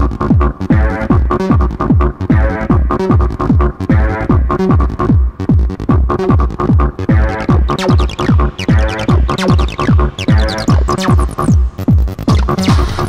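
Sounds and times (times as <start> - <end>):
fast kick drum: 0.0 - 13.0
techno track: 0.0 - 13.0
high synth notes gliding downward: 7.1 - 11.7.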